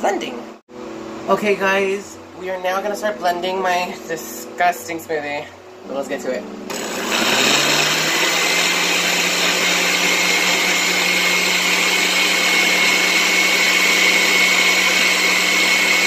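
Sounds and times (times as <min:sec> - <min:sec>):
blender motor running: 0:06.7 - 0:16.0.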